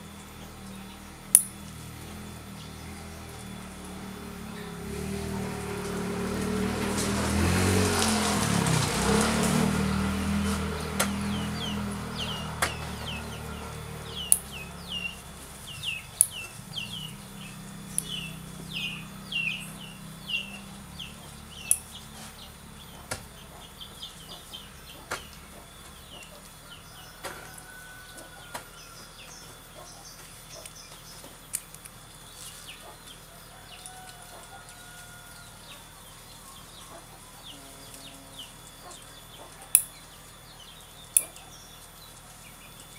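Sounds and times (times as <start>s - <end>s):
birds chirping: 0.0s - 42.9s.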